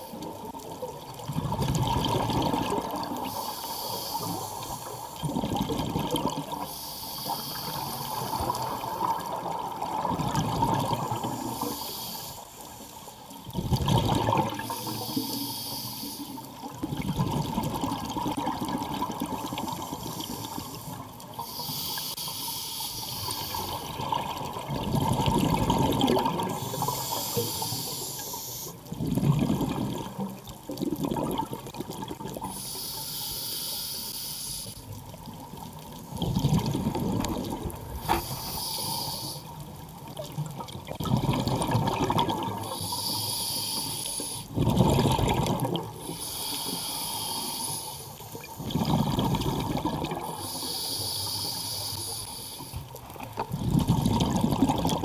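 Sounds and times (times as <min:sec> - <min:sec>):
exhaled bubbles gurgling: 0:00.0 - 0:22.1, 0:23.1 - 0:33.5, 0:34.8 - 0:55.0
regulator inhale hiss: 0:03.2 - 0:05.3, 0:06.5 - 0:09.4, 0:11.0 - 0:13.4, 0:14.5 - 0:16.6, 0:19.3 - 0:24.0, 0:26.4 - 0:29.0, 0:32.4 - 0:35.0, 0:37.9 - 0:39.7, 0:42.6 - 0:44.6, 0:45.9 - 0:48.8, 0:50.2 - 0:53.0.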